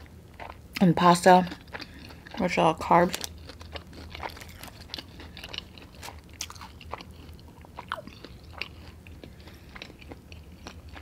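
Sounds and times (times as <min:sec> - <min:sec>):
chewing fried chicken: 0:00.0 - 0:11.0
small crunches: 0:03.0 - 0:08.7.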